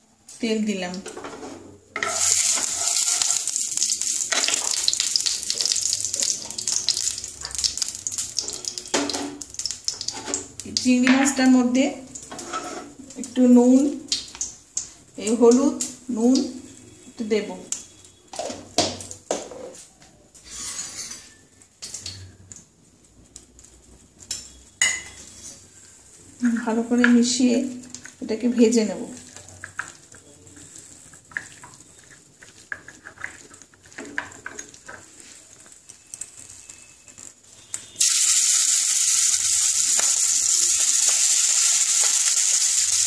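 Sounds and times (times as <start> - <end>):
oil sizzling and crackling: 0.0 - 19.5, 20.4 - 43.0
salt scraping rustle: 2.1 - 3.6.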